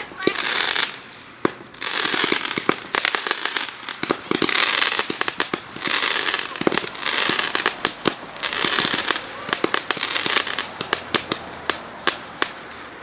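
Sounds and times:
fireworks hissing: 0.0 - 12.9
fireworks popping and crackling: 0.0 - 13.0.

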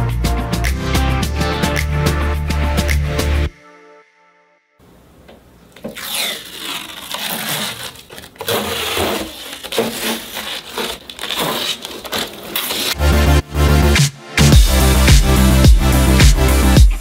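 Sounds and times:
plastic film being peeled: 5.8 - 13.0.

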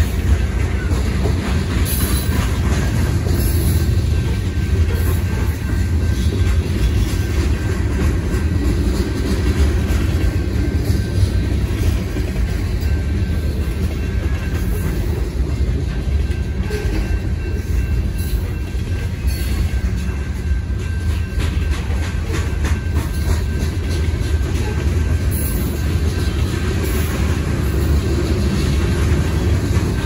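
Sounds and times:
freight train rumbling past: 0.0 - 30.0
wheel clacks over rail joints: 0.0 - 30.0.

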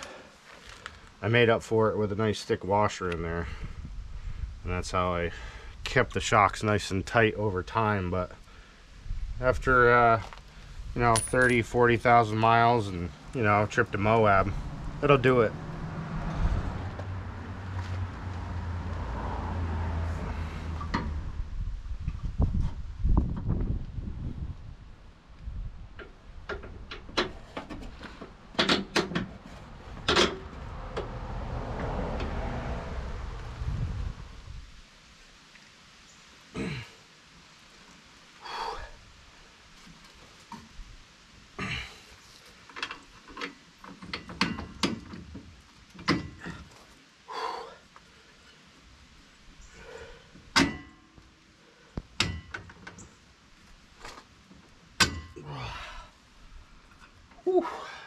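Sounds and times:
metal clanks and knocks: 11.0 - 11.8, 26.0 - 31.2, 42.7 - 46.7, 50.5 - 51.2, 52.2 - 53.0, 55.0 - 55.4
metallic knocks and clinks: 11.0 - 11.8
steady rushing noise: 29.7 - 35.3.

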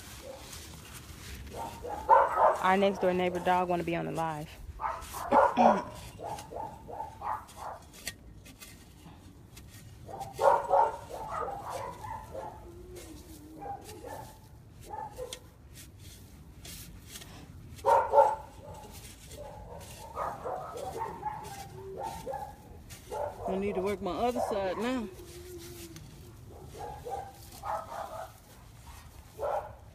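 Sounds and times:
dog barking: 0.2 - 0.4, 1.5 - 2.7, 4.8 - 7.8, 10.1 - 12.6, 13.6 - 15.4, 17.8 - 23.7, 26.5 - 29.8.

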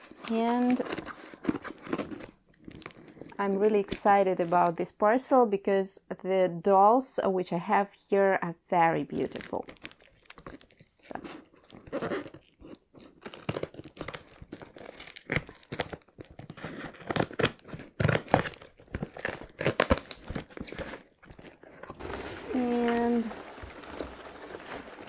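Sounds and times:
tape tearing: 0.0 - 3.0, 9.8 - 25.0
packing paper crackling: 0.0 - 3.3, 9.8 - 25.0
cardboard flaps scraping: 19.1 - 25.0.

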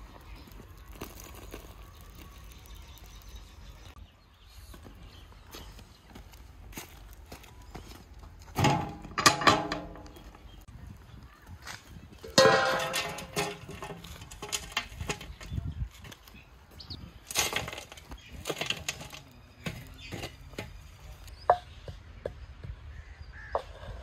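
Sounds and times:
coals scraping and clinking on metal: 0.0 - 4.0, 8.4 - 10.7, 11.6 - 16.4, 17.0 - 21.3
metal lid clang: 8.6 - 10.1, 12.3 - 14.6.

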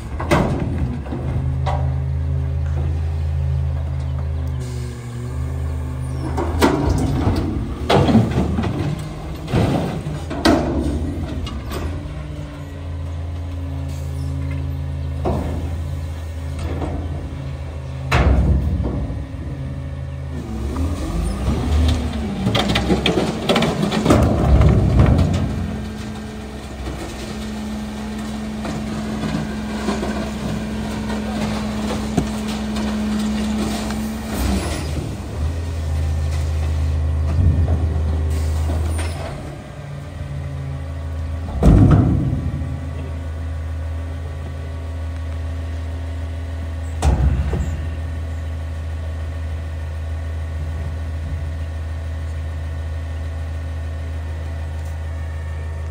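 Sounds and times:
garbage truck engine running: 0.0 - 55.9
metal container bangs and clanks: 41.5 - 42.8.

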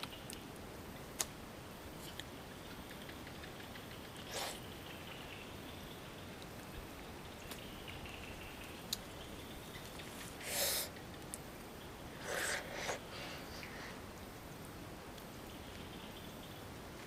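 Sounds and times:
leaves rustling: 0.0 - 17.0
breathy rustle: 12.2 - 14.1.

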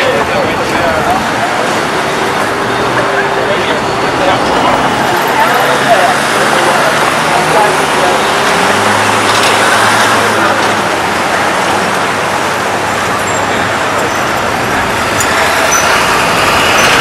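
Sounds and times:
city street traffic: 0.0 - 17.0
vehicle engine humming: 0.0 - 17.0.

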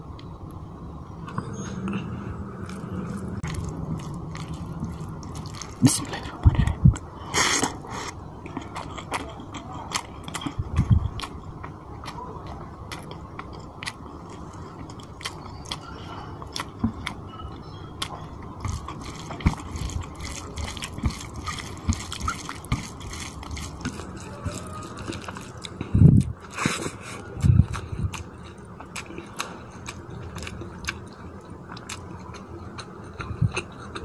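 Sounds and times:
wet chewing and smacking: 2.6 - 34.0
fingers squishing rice in gravy: 18.6 - 25.8.

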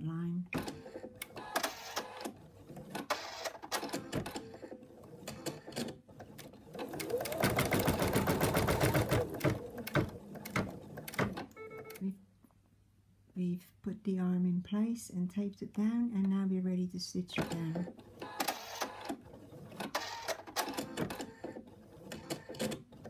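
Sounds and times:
embroidery machine stitching: 0.6 - 11.5, 17.4 - 23.0.

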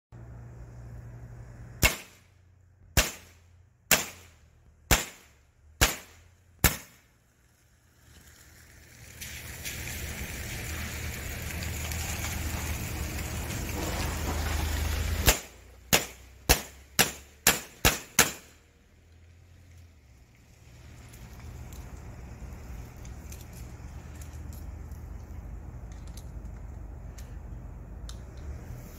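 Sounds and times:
air pistol shots: 1.8 - 2.3, 3.0 - 7.0, 15.2 - 18.6.

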